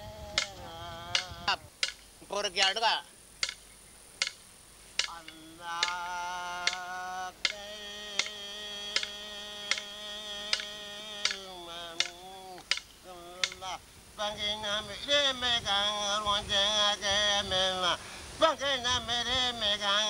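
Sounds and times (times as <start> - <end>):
person chanting long notes: 0.0 - 1.7, 5.0 - 20.0.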